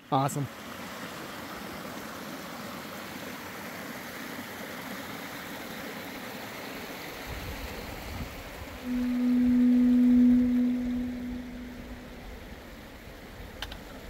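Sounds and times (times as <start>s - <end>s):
creek water rushing: 0.5s - 8.1s.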